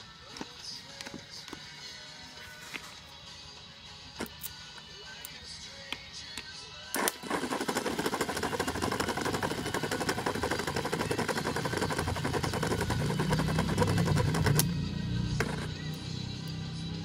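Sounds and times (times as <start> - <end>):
starter motor buzzing: 6.9 - 15.8.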